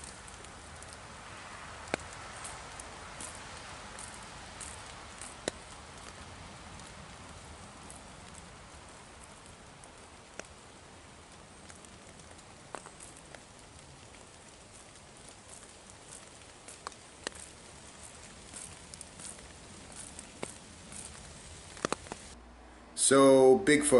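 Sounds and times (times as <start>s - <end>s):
woodland ambience hiss: 0.0s - 22.4s
sharp clicks or snaps: 21.7s - 22.4s.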